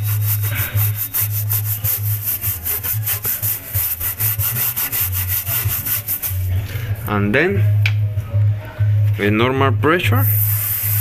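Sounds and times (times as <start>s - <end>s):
brush scrubbing back and forth: 0.0s - 6.5s.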